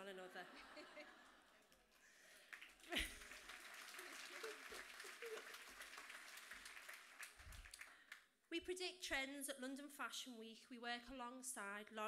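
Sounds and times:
audience applauding: 0:02.2 - 0:08.2.

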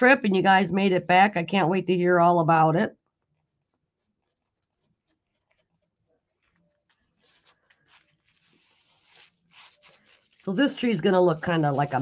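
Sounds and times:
paper rustling: 0:03.2 - 0:12.0.

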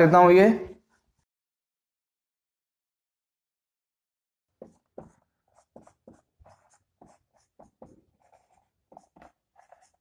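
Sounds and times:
marker scratching on whiteboard: 0:04.5 - 0:10.0.

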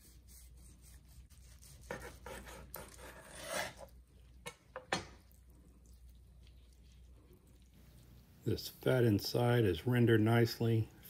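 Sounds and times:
knife sawing through crusty meat: 0:00.0 - 0:03.9.

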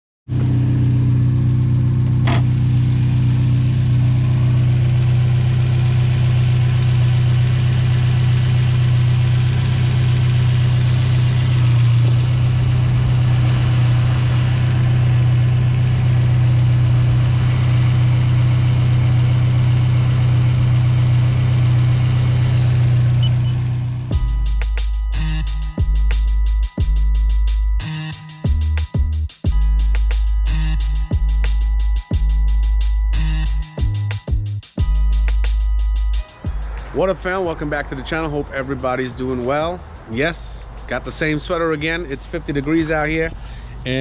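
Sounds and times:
car engine idling: 0:00.3 - 0:26.3, 0:34.8 - 0:44.0.

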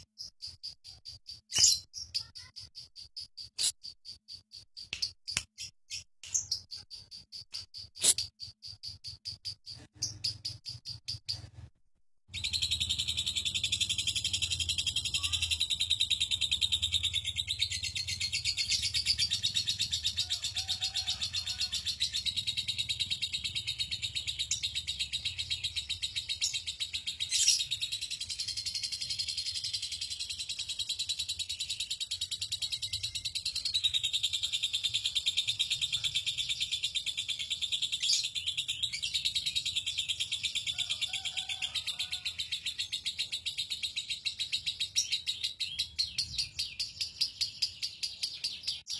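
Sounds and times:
lovebird chattering trill: 0:00.0 - 0:11.5, 0:12.3 - 0:48.9.

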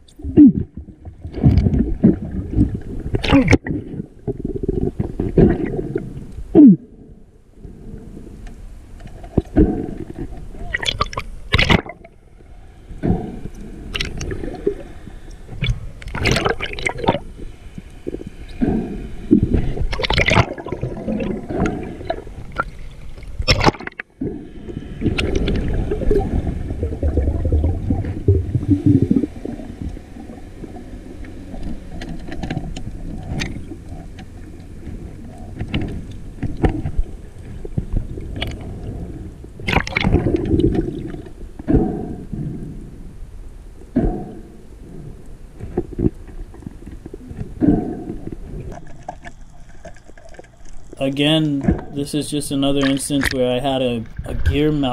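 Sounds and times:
low underwater rumble: 0:00.0 - 0:52.0
underwater gurgling and swishing: 0:00.0 - 0:54.9.

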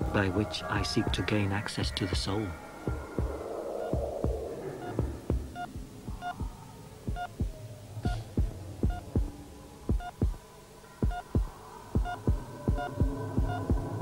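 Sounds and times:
low steady hum: 0:00.0 - 0:14.0
heartbeat thumping: 0:01.0 - 0:10.4, 0:11.0 - 0:14.0
heart monitor beeps: 0:02.9 - 0:09.3, 0:09.9 - 0:10.4, 0:11.0 - 0:14.0.

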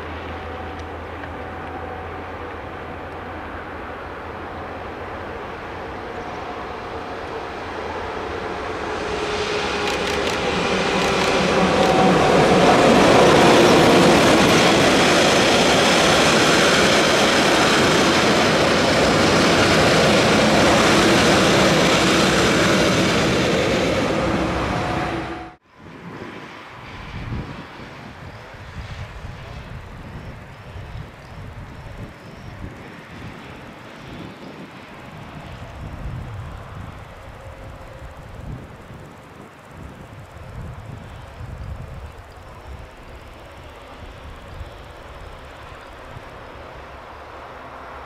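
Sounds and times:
electric locomotive humming: 0:00.0 - 0:48.0
train wheels clattering: 0:09.1 - 0:24.9.

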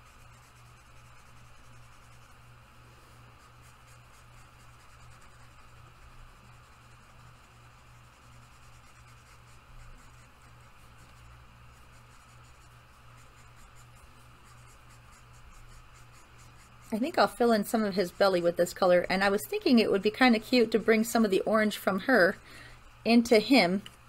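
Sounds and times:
marker scratching on paper: 0:00.0 - 0:02.5, 0:03.2 - 0:22.2.

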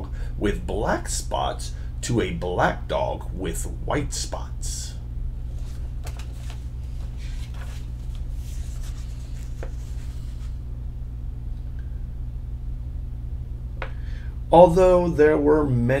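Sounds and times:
low hum: 0:00.0 - 0:16.0
paper pages rustling: 0:05.5 - 0:10.6.

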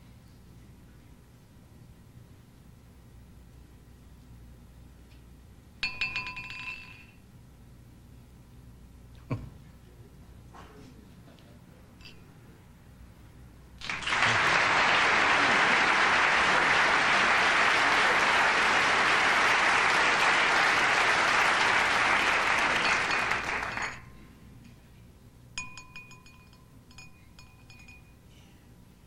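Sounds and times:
wine glasses clinking: 0:05.8 - 0:07.2, 0:12.0 - 0:12.4, 0:21.4 - 0:24.2, 0:25.6 - 0:28.5
audience applauding: 0:13.8 - 0:24.1.

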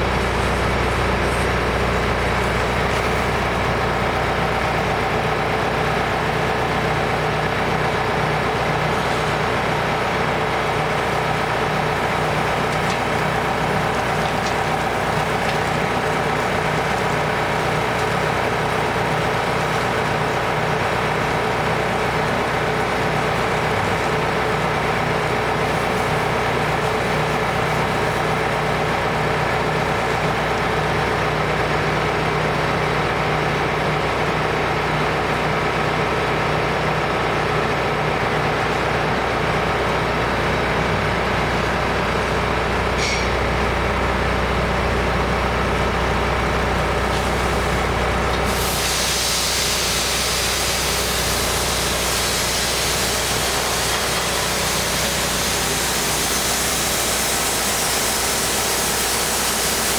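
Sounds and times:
conveyor mechanical hum: 0:00.0 - 0:59.9
bright hiss: 0:48.4 - 0:59.9.

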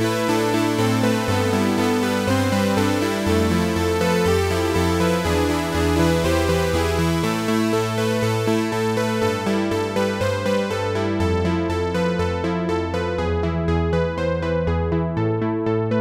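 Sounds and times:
synthesizer playing sustained chords: 0:00.0 - 0:16.0.

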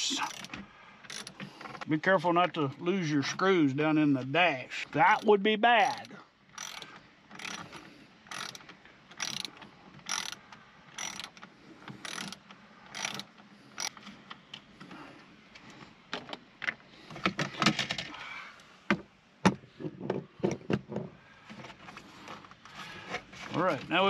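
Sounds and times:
hand ratchet clicking: 0:00.2 - 0:00.5, 0:01.1 - 0:01.4, 0:05.1 - 0:11.4, 0:12.0 - 0:14.0.

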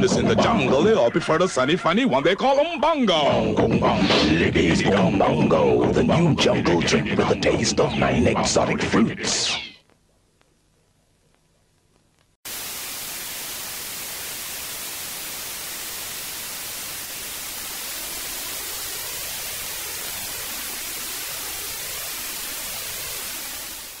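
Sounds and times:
television static hiss: 0:07.3 - 0:24.0.

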